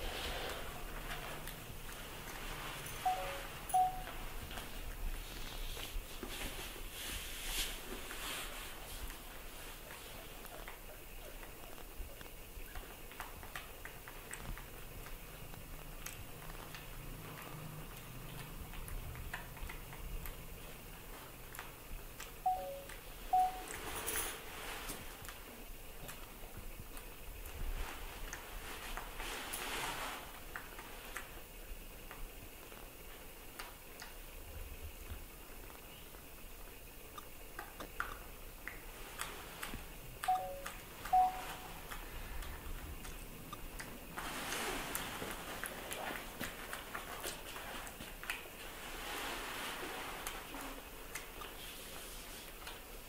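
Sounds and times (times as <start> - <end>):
soft rustling: 0.0 - 12.9, 23.5 - 31.4, 43.8 - 53.0.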